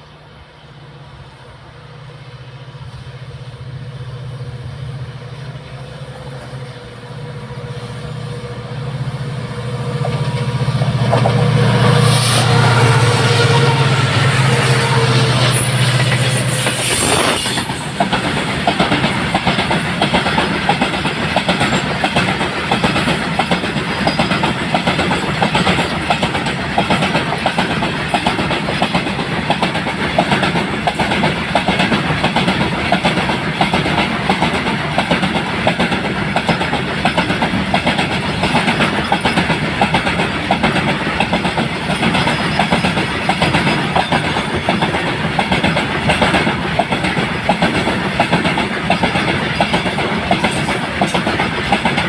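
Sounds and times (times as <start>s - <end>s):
diesel locomotive engine: 0.0s - 52.0s
freight wagons clattering over rail joints: 17.2s - 52.0s.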